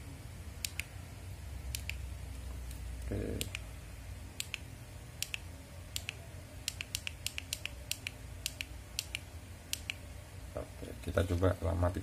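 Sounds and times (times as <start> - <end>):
remote control buttons clicking: 0.6 - 0.9, 1.7 - 2.8, 4.4 - 10.0.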